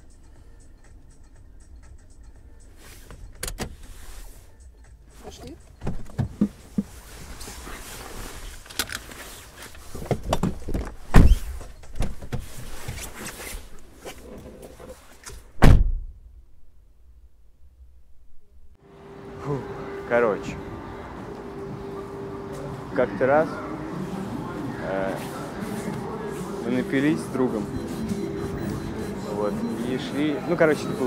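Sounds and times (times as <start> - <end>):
people shifting inside a car: 2.7 - 15.6, 23.6 - 31.0
fabric rustling: 6.6 - 10.1
heavy thump: 15.6 - 16.4.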